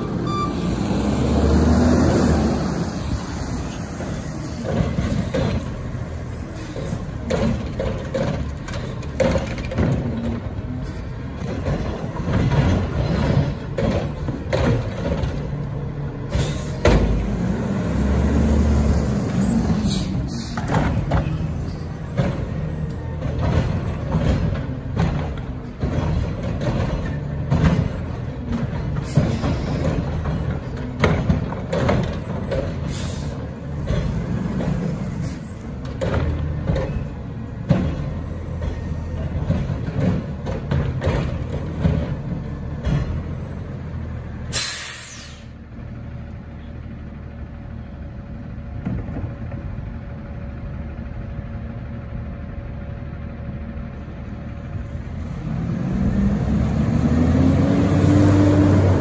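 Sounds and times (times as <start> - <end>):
garbage truck engine and hydraulics: 0.0 - 59.0
bangs and knocks of carts: 1.5 - 44.8
air-brake hiss: 32.9 - 33.4, 44.5 - 45.6.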